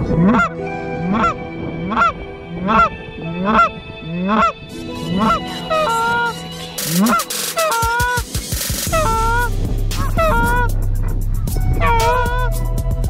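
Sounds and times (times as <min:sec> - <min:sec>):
goose call honking: 0:00.1 - 0:00.5, 0:01.1 - 0:08.2, 0:08.9 - 0:10.7, 0:11.8 - 0:12.5.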